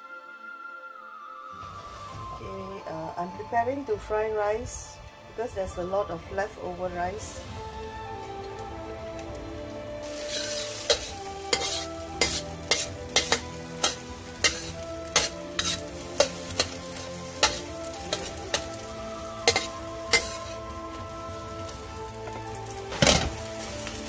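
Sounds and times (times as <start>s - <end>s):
eggs sizzling in oil: 5.7s - 24.0s
spatula scraping and tapping wok: 10.0s - 21.0s.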